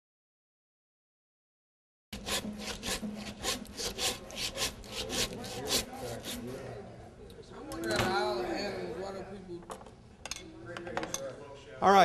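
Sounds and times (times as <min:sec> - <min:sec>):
hand saw cutting bone: 0:02.2 - 0:06.5.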